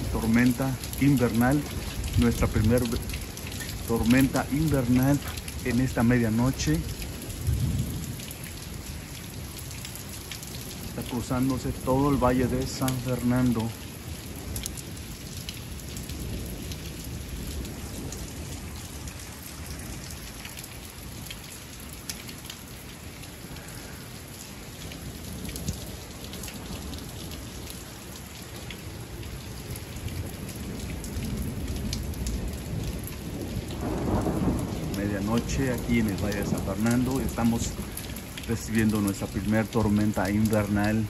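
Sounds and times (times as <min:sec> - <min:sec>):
thunder rumble: 0:00.0 - 0:09.0, 0:29.6 - 0:40.9
rain falling: 0:00.0 - 0:41.0.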